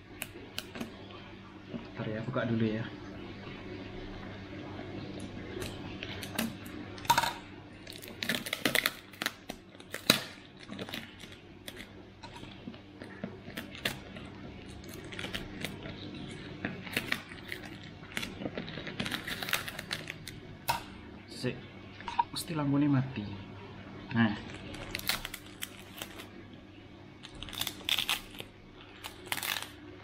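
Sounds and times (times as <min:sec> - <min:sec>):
tape crinkling: 0:16.9 - 0:20.4, 0:24.4 - 0:26.3, 0:27.2 - 0:29.8.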